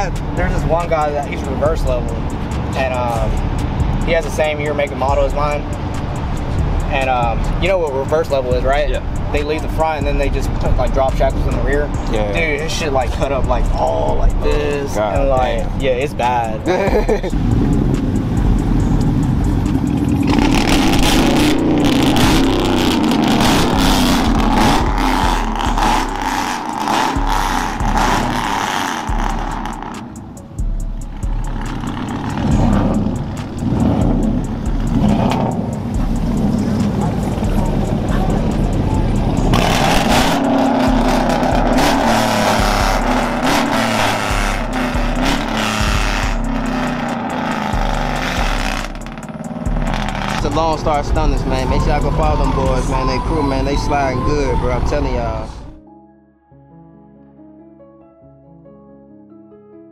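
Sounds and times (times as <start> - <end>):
pickup truck engine driving off: 16.8 - 30.4, 31.1 - 54.9.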